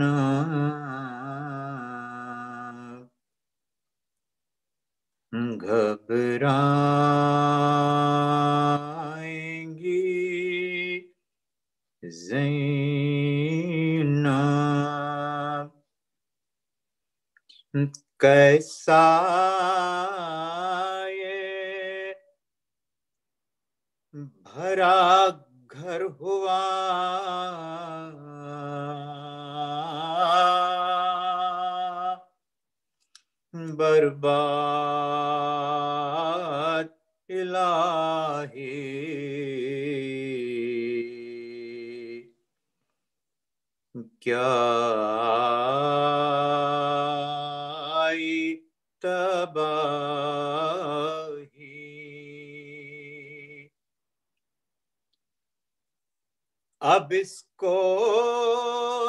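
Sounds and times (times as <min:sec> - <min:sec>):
man singing unaccompanied: 0:00.0 - 0:03.2, 0:05.3 - 0:11.2, 0:12.0 - 0:15.8, 0:17.7 - 0:22.3, 0:24.2 - 0:32.4, 0:33.5 - 0:42.4, 0:44.0 - 0:53.8, 0:56.8 - 0:59.0.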